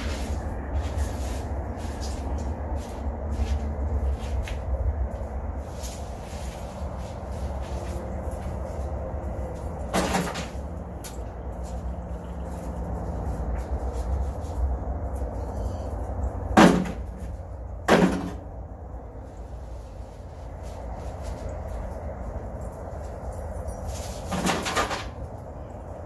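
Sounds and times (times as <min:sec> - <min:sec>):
steady low rumble: 0:00.0 - 0:24.2
rubble clunking into metal wheelbarrow: 0:17.9 - 0:18.5, 0:24.2 - 0:25.2.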